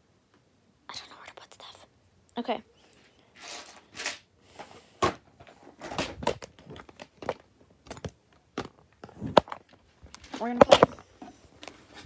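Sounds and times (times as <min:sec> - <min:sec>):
desk items rustling: 0:02.9 - 0:12.0
items clacking when set down: 0:03.4 - 0:12.0.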